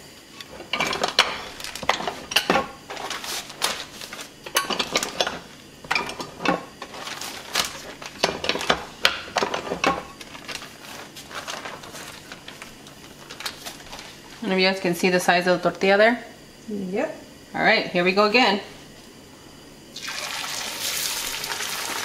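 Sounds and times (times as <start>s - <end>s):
plastic rustling: 0.5s - 5.5s, 6.3s - 14.7s.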